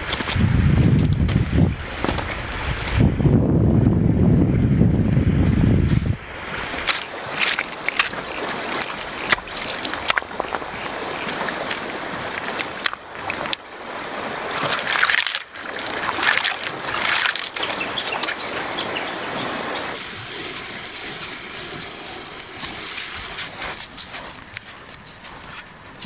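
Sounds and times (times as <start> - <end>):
shallow river running: 0.0 - 26.0
hands splashing in water: 14.5 - 18.5.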